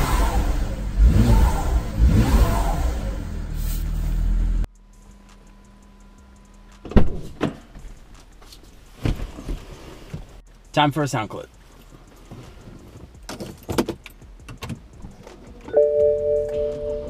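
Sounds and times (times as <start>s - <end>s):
car engine revving: 0.0s - 6.7s
knocks and thumps in car: 6.9s - 7.9s, 12.3s - 15.5s.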